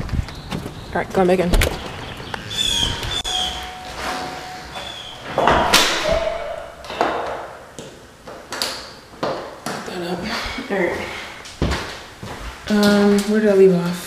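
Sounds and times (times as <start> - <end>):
door slamming: 2.6 - 7.7.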